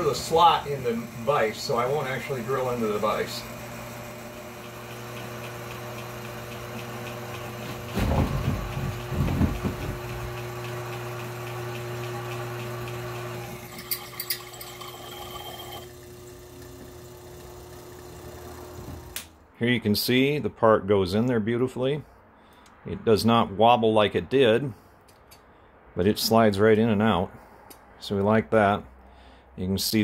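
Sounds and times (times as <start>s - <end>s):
drill cutting through metal: 0.0s - 9.2s, 10.0s - 19.2s
mill spindle motor running: 0.0s - 19.3s.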